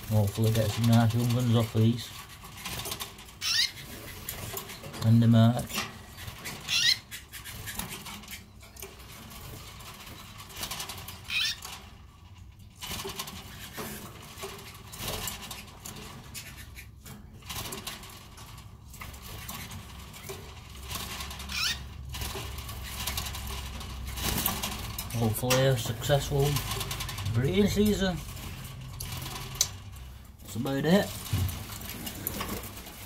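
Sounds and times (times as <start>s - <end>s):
birds rustling and hopping in cage: 0.0s - 33.0s
bird chirp: 3.4s - 5.0s, 6.0s - 8.8s, 21.4s - 21.9s.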